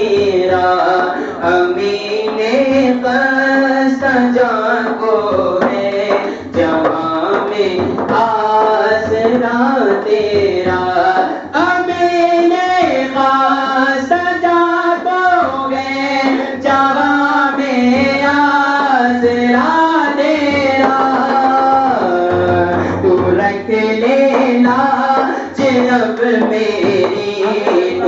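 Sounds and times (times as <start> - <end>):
man singing devotional song: 0.0 - 28.0.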